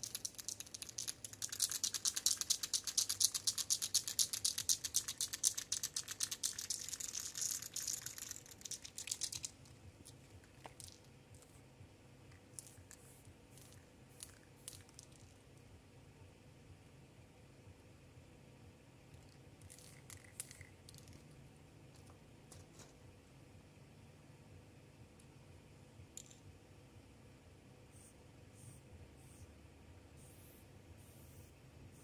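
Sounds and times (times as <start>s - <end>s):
spray can ball rattling: 0.0s - 11.1s, 12.3s - 15.4s, 19.2s - 21.3s.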